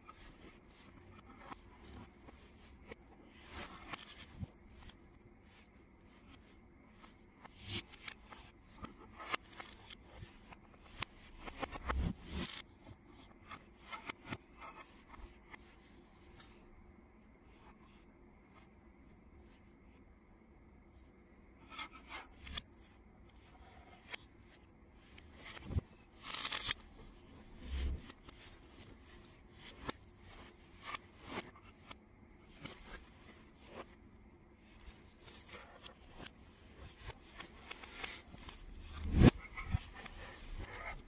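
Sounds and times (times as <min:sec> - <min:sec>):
plastic pieces clicking: 0:26.2 - 0:26.8.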